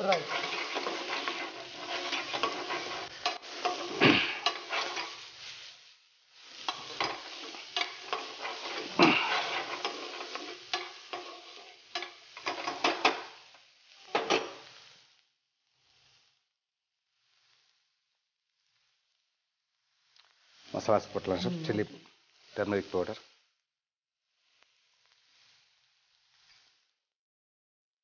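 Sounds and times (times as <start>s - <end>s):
spatula scraping a frying pan: 0.0s - 15.0s, 25.0s - 26.9s
food sizzling in oil: 0.0s - 16.4s, 17.0s - 23.6s, 24.2s - 27.0s.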